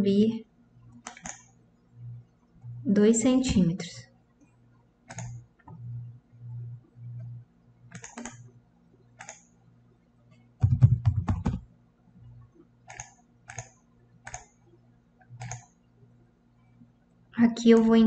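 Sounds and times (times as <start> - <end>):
computer keyboard typing: 1.0 - 1.5, 5.1 - 5.9, 7.1 - 8.5, 9.1 - 9.5, 10.5 - 11.7, 12.9 - 14.6, 15.4 - 15.7.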